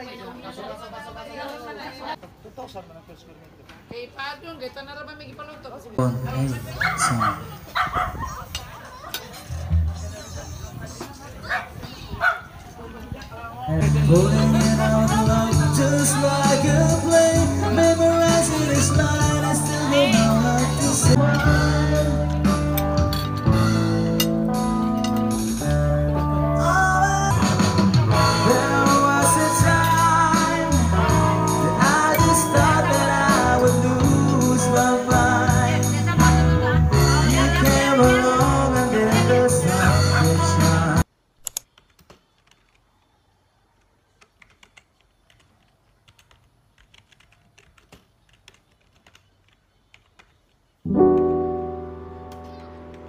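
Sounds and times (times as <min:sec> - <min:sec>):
bass guitar: 0:09.5 - 0:11.0, 0:13.7 - 0:41.0, 0:50.9 - 0:53.0
acoustic guitar: 0:13.7 - 0:41.0
person singing: 0:13.8 - 0:24.0, 0:25.6 - 0:41.1
electric guitar: 0:13.8 - 0:41.0, 0:50.9 - 0:53.0
typing on computer keyboard: 0:44.1 - 0:50.6
background music chord: 0:50.9 - 0:53.0.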